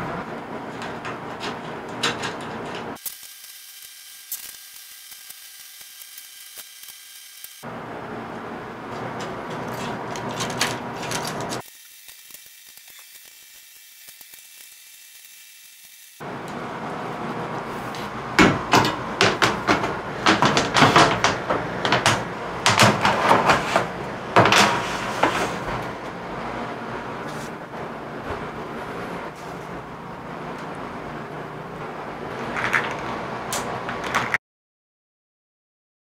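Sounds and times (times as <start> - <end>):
sharp knocks and clicks: 18.4 - 23.6
metal rails knocking and clattering: 18.4 - 23.8.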